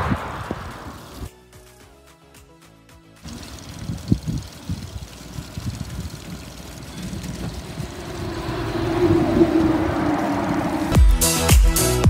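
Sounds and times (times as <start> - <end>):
steady rushing noise: 0.0 - 1.3, 7.0 - 11.2
electronic dance music: 11.0 - 12.0.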